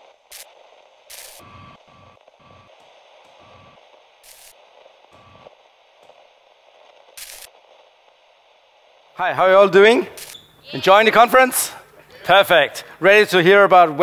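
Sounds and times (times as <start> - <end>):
short bursts of noise: 0.0 - 10.8
static hiss: 0.0 - 14.0.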